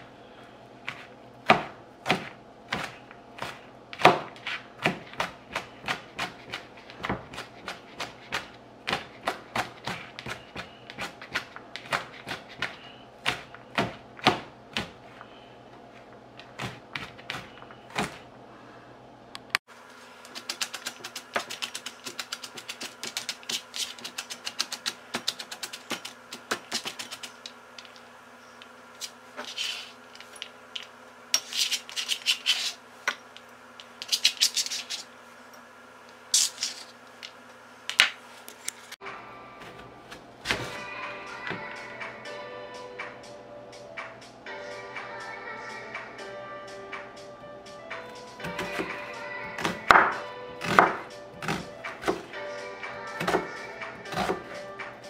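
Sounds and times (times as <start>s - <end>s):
knife chopping on cutting board: 0.9s - 15.0s, 49.6s - 52.3s, 53.2s - 53.5s, 54.1s - 54.6s.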